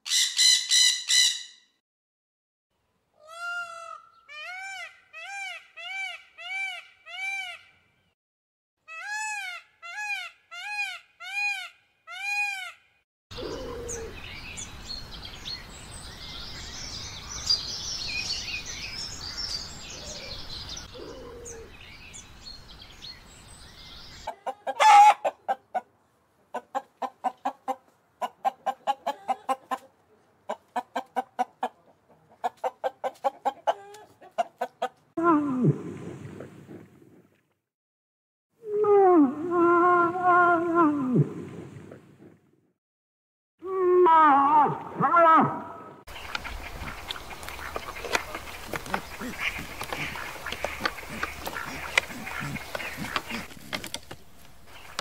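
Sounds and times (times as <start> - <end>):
harsh bird squawks: 0.0 - 1.6
small birds chirping: 13.4 - 24.5, 46.1 - 55.0
rapid pulsed bird calls: 46.1 - 53.5.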